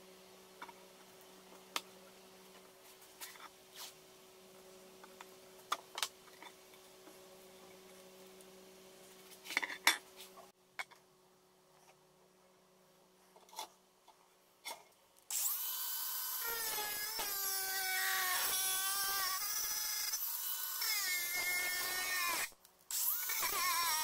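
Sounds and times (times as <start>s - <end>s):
angle grinder cutting metal: 15.3s - 24.0s.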